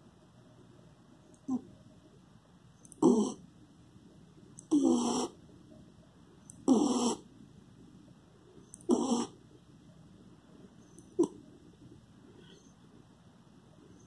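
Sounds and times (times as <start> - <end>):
dog snoring: 3.0 - 3.4, 4.7 - 5.4, 6.6 - 7.2, 8.8 - 9.4.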